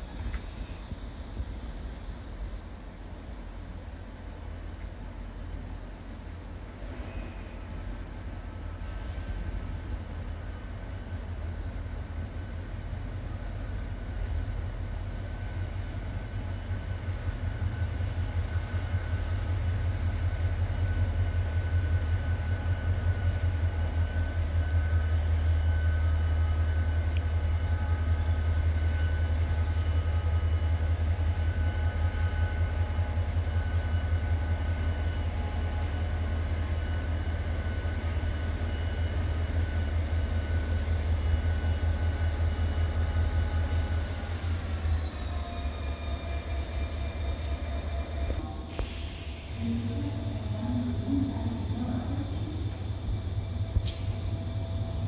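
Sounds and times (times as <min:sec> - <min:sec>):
diesel locomotive engine rumble: 0:00.0 - 0:55.0.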